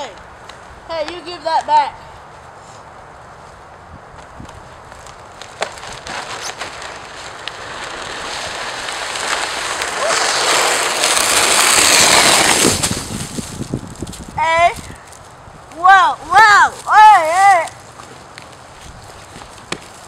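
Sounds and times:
plastic sled scraping over ice: 5.1 - 15.2.

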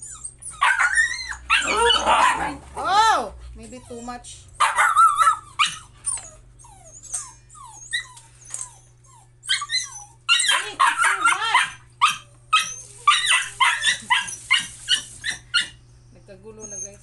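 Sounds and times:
dogs yipping and barking: 0.0 - 2.6, 3.8 - 15.8
dogs whining: 0.0 - 17.0.

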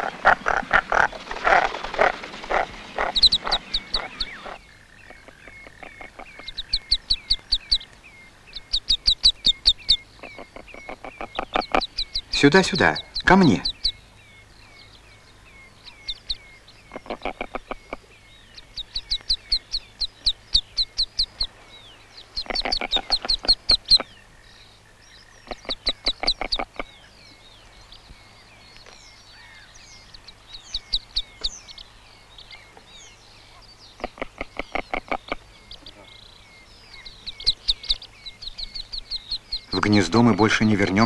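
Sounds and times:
ducklings peeping: 0.0 - 41.0.

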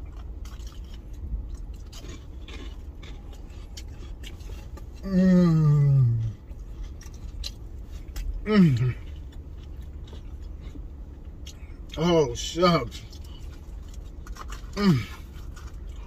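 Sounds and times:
person chewing: 0.0 - 16.0
person humming with full mouth: 5.0 - 6.3.

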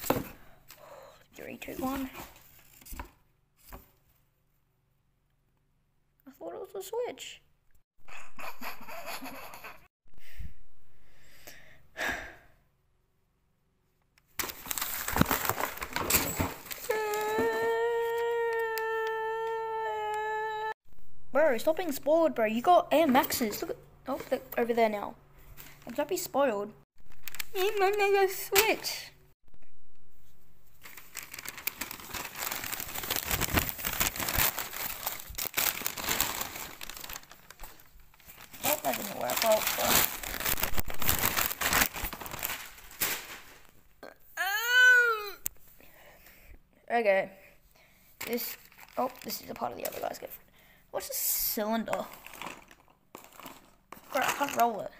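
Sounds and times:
tissue paper and cardboard crinkling: 14.4 - 18.3, 30.6 - 43.8, 48.2 - 50.2, 52.1 - 54.6.

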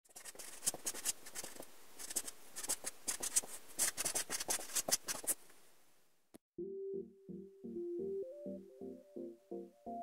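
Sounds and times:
pen scratching on paper: 0.1 - 5.4.

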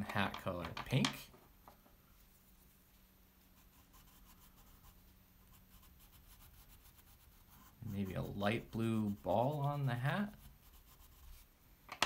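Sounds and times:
crayon scratching on paper: 3.6 - 11.5.

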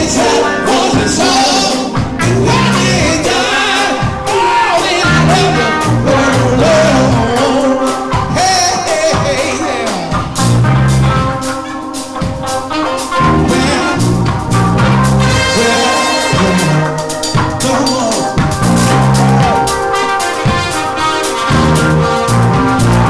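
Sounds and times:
man singing: 0.0 - 10.4, 13.2 - 14.5, 15.2 - 19.7
funk band playing: 0.0 - 23.0.

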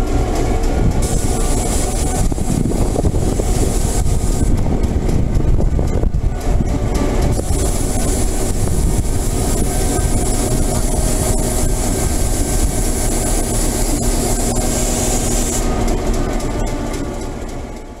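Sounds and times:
diesel locomotive engine idling: 0.0 - 18.0
high hiss: 7.3 - 15.7.

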